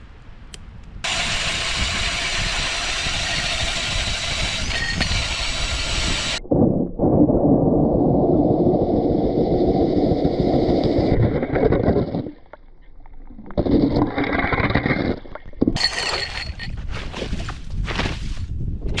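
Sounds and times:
drill auger grinding through ice: 0:01.0 - 0:06.4.

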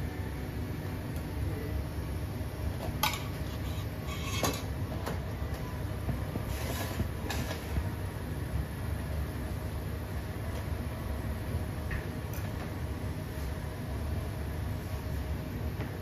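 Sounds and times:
kitchen hum: 0:00.0 - 0:16.0
utensils and dishes clinking: 0:03.0 - 0:04.7.

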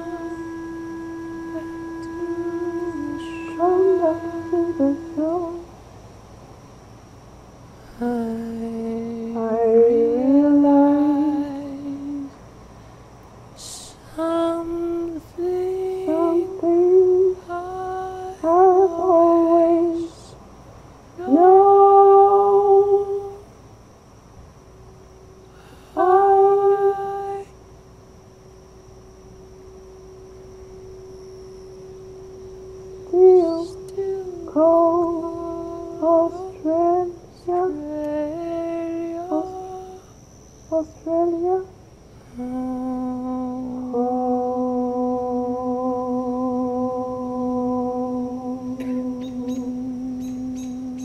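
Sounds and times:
person humming slow melody: 0:00.0 - 0:05.8, 0:07.8 - 0:12.4, 0:13.6 - 0:20.4, 0:21.2 - 0:23.5, 0:25.4 - 0:27.6, 0:28.5 - 0:51.0
faint high-pitched whine: 0:00.0 - 0:51.0.

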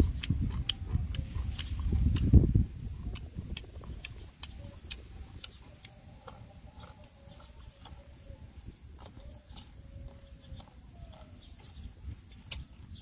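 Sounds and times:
mouth clicks: 0:00.0 - 0:13.0
person chewing crunchy food: 0:00.0 - 0:13.0.

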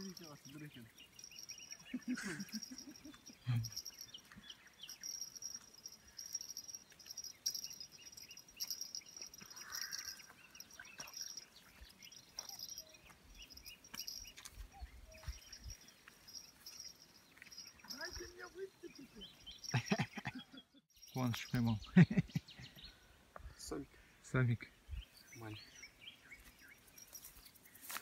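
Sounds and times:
insect trill: 0:00.0 - 0:20.3
small birds chirping: 0:00.0 - 0:28.0.

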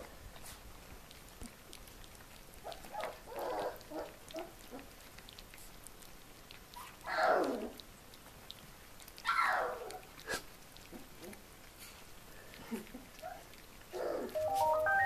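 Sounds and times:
puppies eating: 0:00.0 - 0:15.0
puppy cries: 0:06.8 - 0:07.8, 0:09.2 - 0:10.1.

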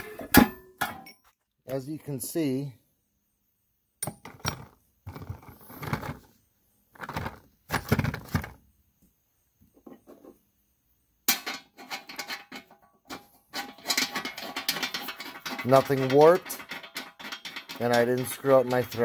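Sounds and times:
metal clanking on wood: 0:11.3 - 0:19.0
rattly clicking: 0:13.6 - 0:19.0.

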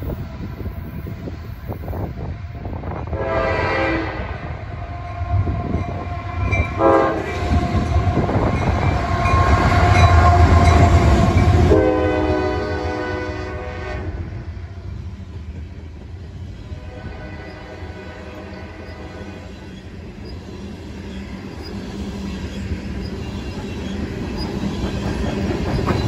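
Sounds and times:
locomotive air horn: 0:03.1 - 0:14.4, 0:16.7 - 0:19.5
train wheels clattering on rails: 0:05.0 - 0:12.0, 0:18.3 - 0:26.0.

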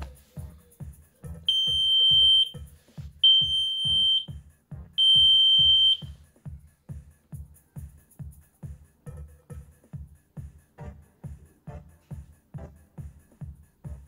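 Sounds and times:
electronic music with beat: 0:00.0 - 0:14.0
high-pitched electronic beeps: 0:01.5 - 0:02.5, 0:03.2 - 0:04.3.

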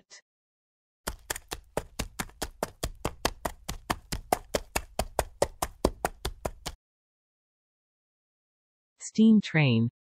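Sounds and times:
horse hooves clip-clopping: 0:01.1 - 0:06.8.

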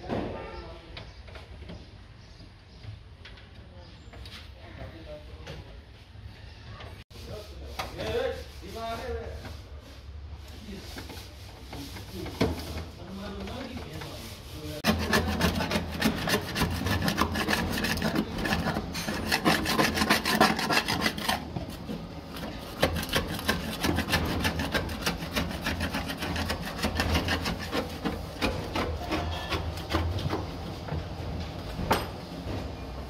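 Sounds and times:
scraper blade scraping metal: 0:14.8 - 0:30.0.

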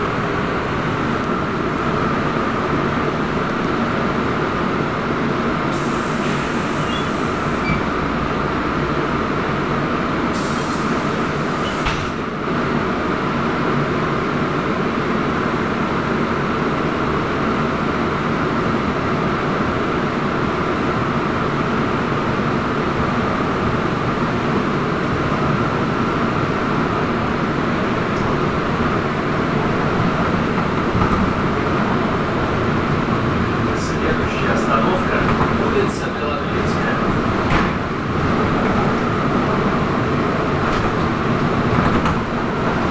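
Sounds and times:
trolleybus running rumble: 0:00.0 - 0:42.9.

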